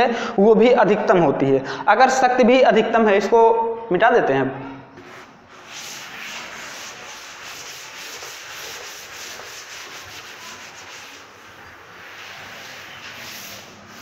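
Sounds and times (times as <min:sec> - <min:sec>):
duster rubbing on chalkboard: 0:05.0 - 0:14.0.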